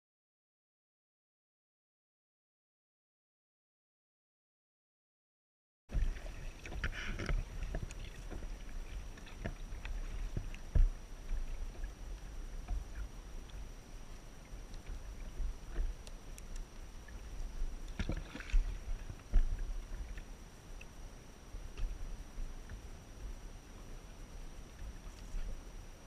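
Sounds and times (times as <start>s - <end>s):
water lapping against kayak hull: 5.9s - 26.0s
wind rumbling on microphone: 5.9s - 26.0s.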